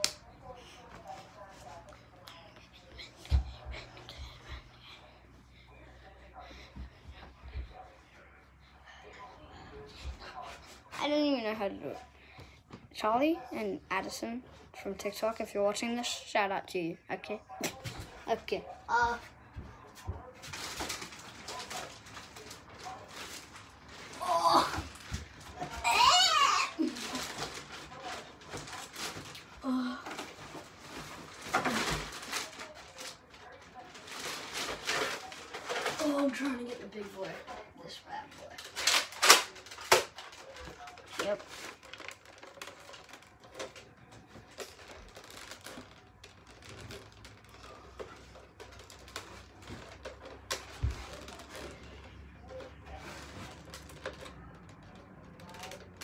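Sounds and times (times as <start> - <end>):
child murmuring: 24.2 - 24.9, 25.8 - 27.2.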